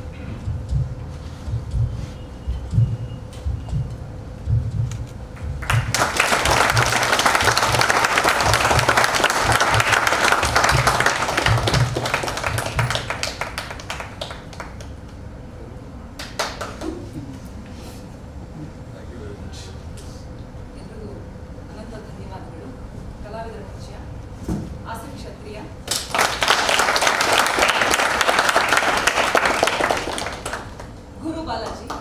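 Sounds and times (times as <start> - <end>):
audience applauding: 5.4 - 15.0, 16.2 - 17.0, 25.9 - 31.0.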